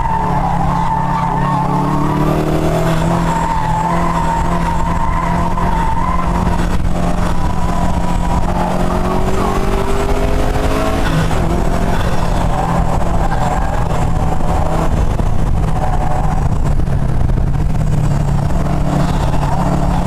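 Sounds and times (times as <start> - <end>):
tyres squealing: 0.0 - 10.3
car engine running hard: 0.0 - 20.0.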